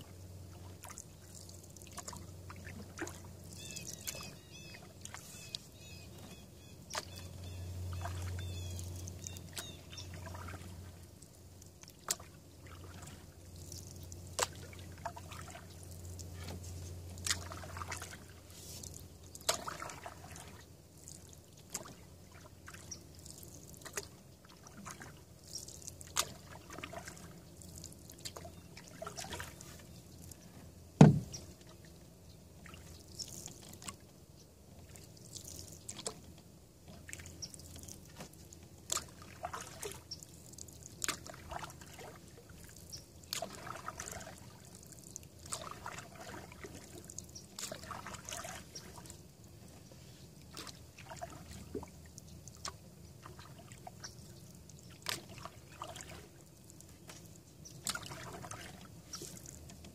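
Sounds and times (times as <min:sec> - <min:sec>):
paddle strokes in water: 0:00.0 - 0:59.9
water dripping off paddle: 0:00.6 - 0:06.1, 0:06.8 - 0:30.4, 0:36.9 - 0:49.2, 0:50.5 - 0:59.9
loud knock: 0:31.0 - 0:31.3.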